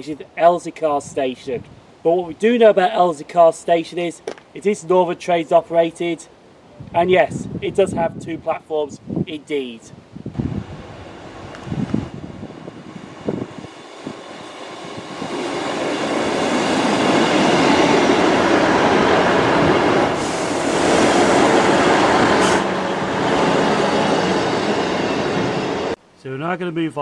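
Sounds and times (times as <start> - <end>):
diesel train passing: 10.4 - 26.0.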